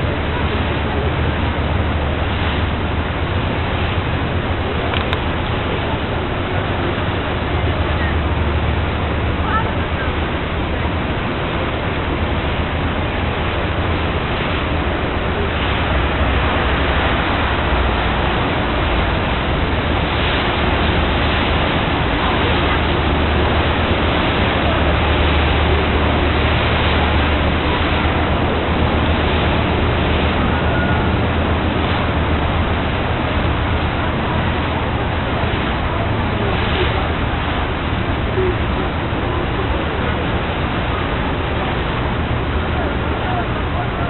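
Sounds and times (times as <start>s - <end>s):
boat engine drone: 0.0s - 44.0s
water washing: 0.0s - 44.0s
wind rushing: 0.0s - 44.0s.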